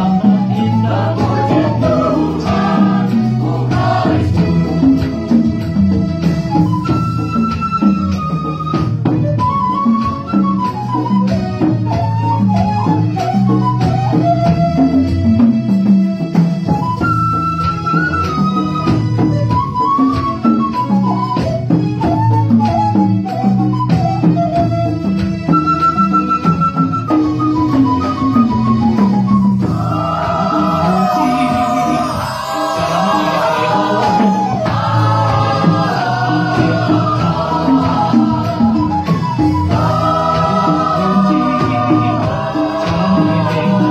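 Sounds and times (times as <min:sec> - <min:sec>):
mixed choir singing: 0:00.0 - 0:05.7, 0:29.6 - 0:43.9
choir singing with accompaniment: 0:00.0 - 0:25.2, 0:26.2 - 0:43.9
light percussion: 0:00.0 - 0:43.9.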